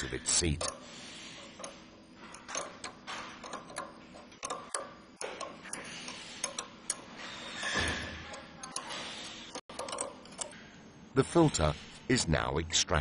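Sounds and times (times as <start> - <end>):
metal tool clicks: 1.6 - 5.8, 9.5 - 10.6
ratchet wrench clicking: 1.6 - 10.6.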